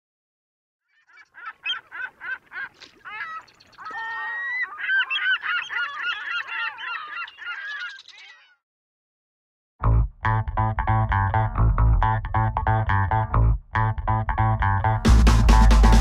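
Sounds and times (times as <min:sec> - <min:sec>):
honking bird calls: 0:00.9 - 0:08.6.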